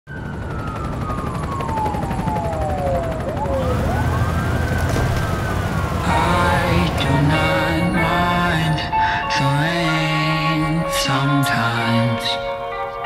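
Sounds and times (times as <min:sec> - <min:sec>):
siren wailing: 0:00.1 - 0:10.7
low rumble of traffic: 0:02.2 - 0:09.6.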